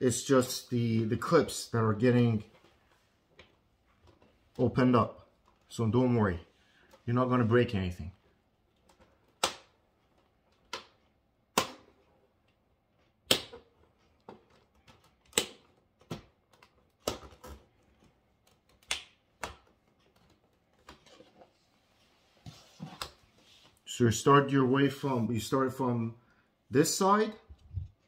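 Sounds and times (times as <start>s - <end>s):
plastic clips snapping loose: 13.2s - 17.6s.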